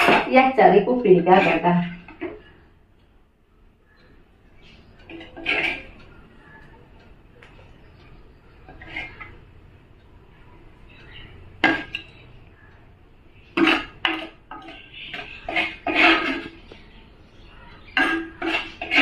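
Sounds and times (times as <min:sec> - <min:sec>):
metal spoon clinking and scraping: 0:05.0 - 0:06.0, 0:13.5 - 0:16.8, 0:17.8 - 0:19.0.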